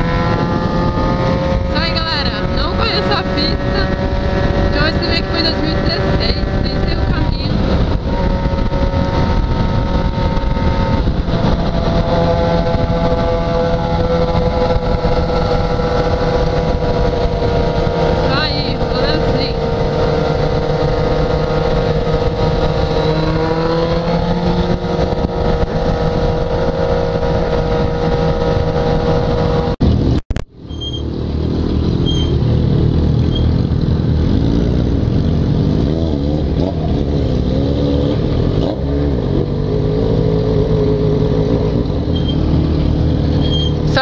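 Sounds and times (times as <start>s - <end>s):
wind rush: 0.0s - 30.7s
motorcycle engine running: 0.0s - 44.0s
other motorcycles running: 0.0s - 44.0s.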